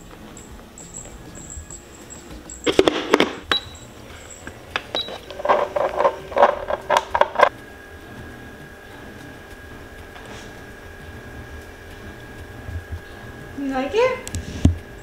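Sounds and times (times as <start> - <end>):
plastic caps clicking: 4.7 - 7.5.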